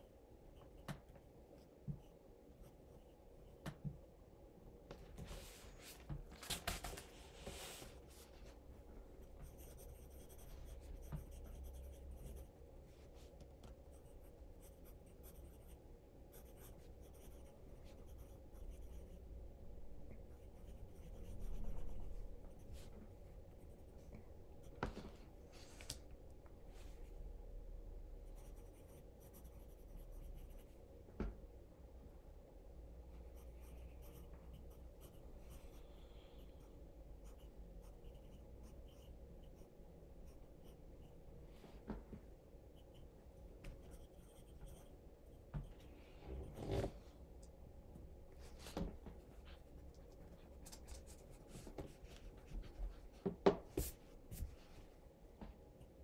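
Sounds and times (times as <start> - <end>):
pencil scratching on paper: 9.2 - 12.5, 13.9 - 19.2, 20.3 - 22.9, 28.3 - 30.8, 33.4 - 35.9, 37.2 - 41.1.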